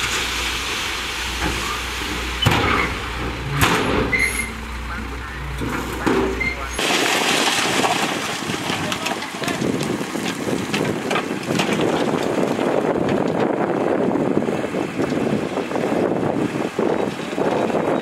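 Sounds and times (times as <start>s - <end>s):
soil sliding from truck bed: 0.0s - 13.3s.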